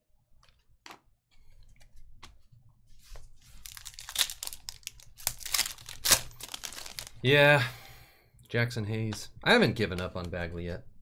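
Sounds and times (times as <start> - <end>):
foil wrapper crinkling and tearing: 3.5 - 7.2.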